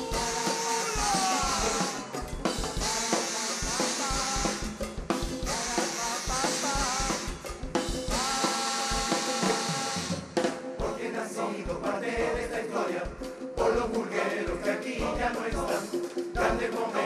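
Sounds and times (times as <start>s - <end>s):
cymbal crashes: 0.0s - 10.4s
bass drum and snare march beat: 0.0s - 17.0s.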